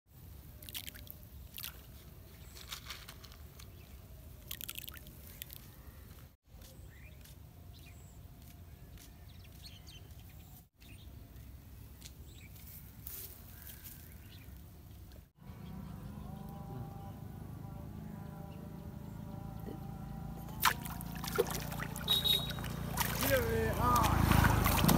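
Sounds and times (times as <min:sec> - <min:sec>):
low rumble of wind: 0:14.2 - 0:24.9.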